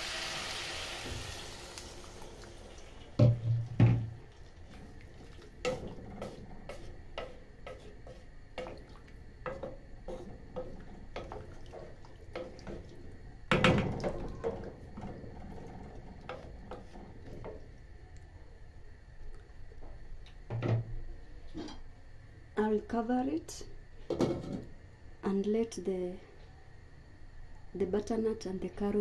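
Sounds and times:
spoon stirring vegetables in water: 0:04.3 - 0:17.7.

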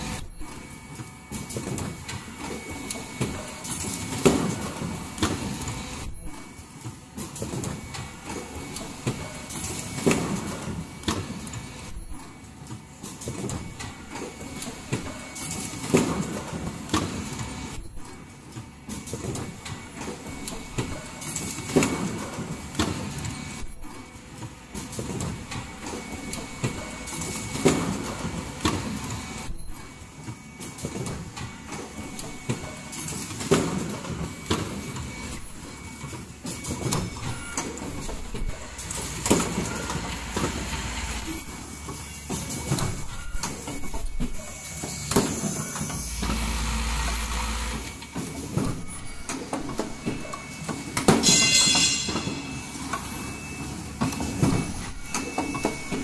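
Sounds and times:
production line clattering: 0:00.0 - 0:56.0
sharp machine knock: 0:06.0 - 0:06.6, 0:11.9 - 0:12.4, 0:17.7 - 0:18.2, 0:23.6 - 0:24.2, 0:29.4 - 0:30.0.

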